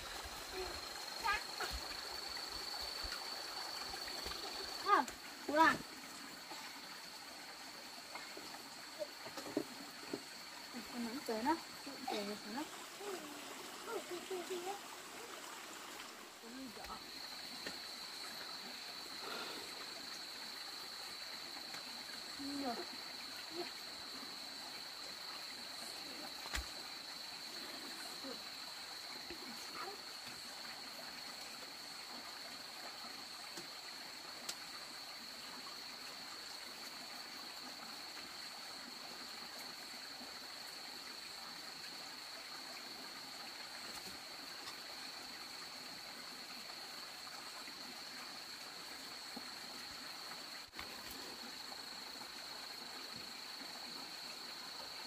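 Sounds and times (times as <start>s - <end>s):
insects droning: 0.0s - 55.0s
even hiss: 10.2s - 30.2s.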